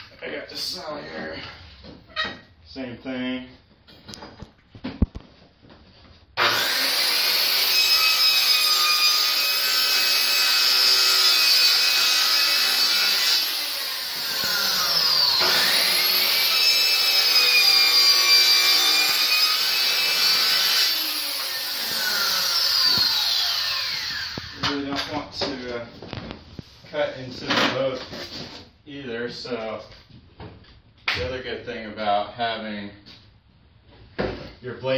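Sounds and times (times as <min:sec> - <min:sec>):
circular saw cutting wood: 0:06.4 - 0:24.8.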